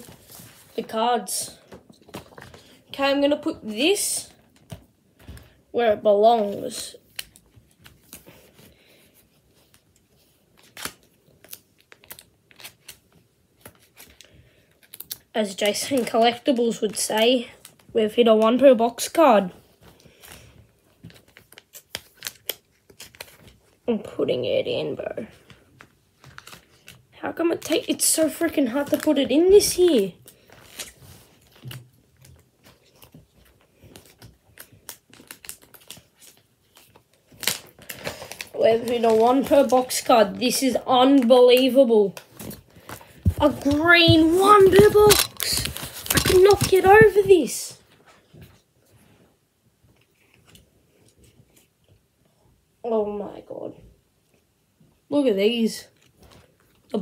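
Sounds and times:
trading cards clicking and rustling: 0:31.6 - 0:47.6.

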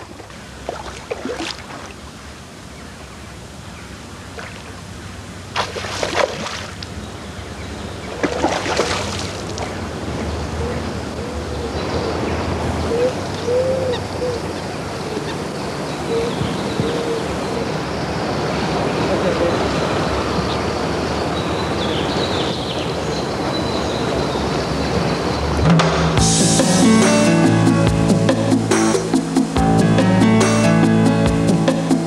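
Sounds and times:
noisy water wash: 0:00.0 - 0:25.6
fish splashing at water surface: 0:05.6 - 0:06.8, 0:08.2 - 0:09.7.

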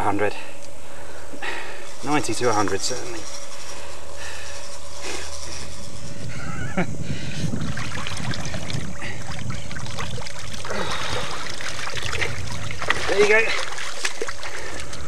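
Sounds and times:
water sloshing and splashing: 0:07.5 - 0:15.0.

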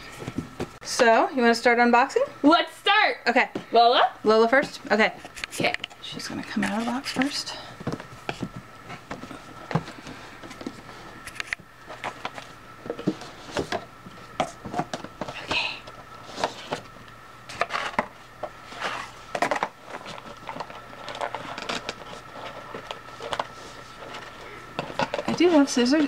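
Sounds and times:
cardboard rustling: 0:06.4 - 0:15.6, 0:16.2 - 0:26.0.

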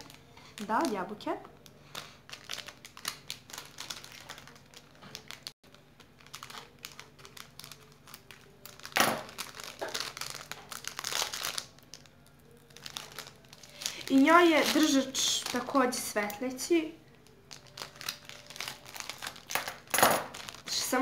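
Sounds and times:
plastic wrapper crinkling: 0:00.0 - 0:21.0
scissors cutting plastic: 0:17.3 - 0:20.6.

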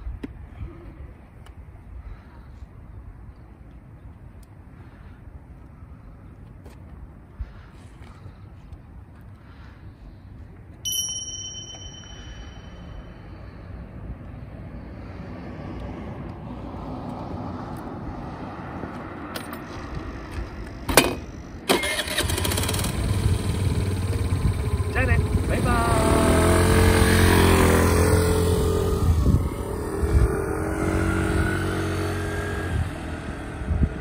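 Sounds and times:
short high-pitched ding: 0:10.9 - 0:13.2
moped engine idling: 0:21.9 - 0:29.2.

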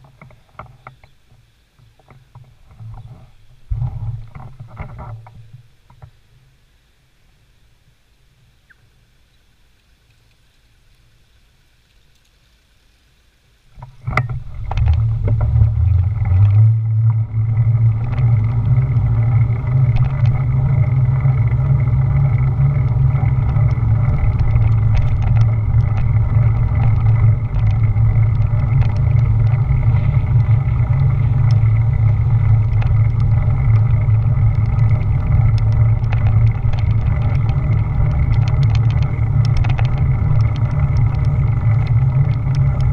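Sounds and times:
small ticks from road surface: 0:00.0 - 0:42.9
road rumble: 0:13.7 - 0:42.9
wind buffeting microphone: 0:13.8 - 0:42.9.

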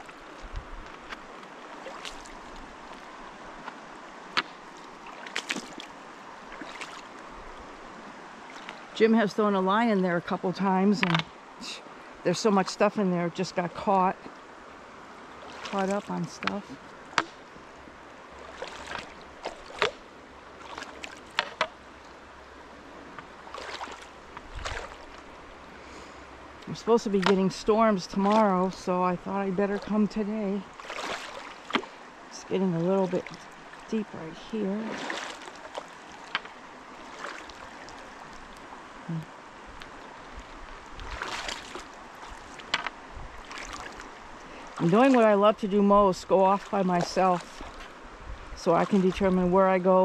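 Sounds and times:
river running over rocks: 0:00.0 - 0:50.0
splashes of someone wading: 0:01.1 - 0:09.0, 0:15.1 - 0:17.6, 0:18.2 - 0:21.9, 0:23.2 - 0:25.7, 0:30.6 - 0:39.2, 0:39.8 - 0:45.6, 0:46.5 - 0:49.4.

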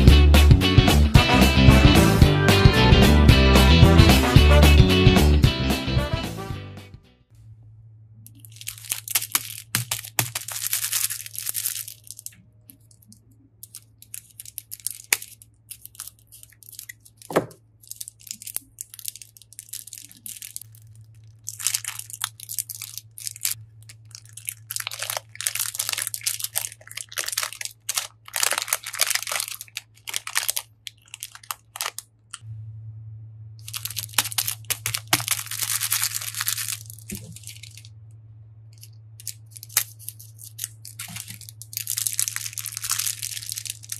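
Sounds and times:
steady low hum: 0:07.2 - 0:43.9
plastic bag crinkling: 0:08.3 - 0:32.4, 0:33.6 - 0:37.9, 0:38.8 - 0:43.9.

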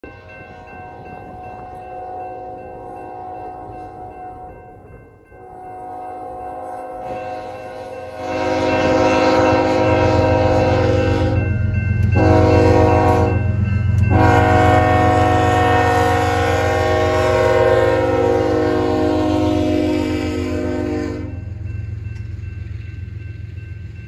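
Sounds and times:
locomotive air horn blasts: 0:05.4 - 0:13.4, 0:14.0 - 0:21.5.

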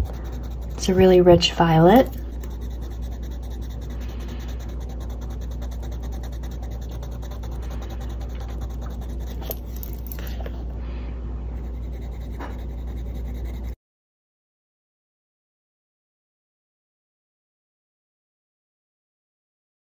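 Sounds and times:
sharp pencil ticks: 0:00.0 - 0:10.1, 0:11.6 - 0:13.8
pencil scratching on paper: 0:00.0 - 0:10.4, 0:11.5 - 0:13.8
steady low hum: 0:00.0 - 0:13.8.

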